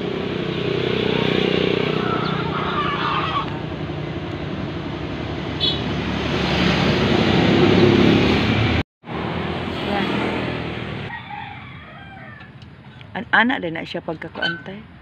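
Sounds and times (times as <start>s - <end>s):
chicken call: 1.9s - 3.6s.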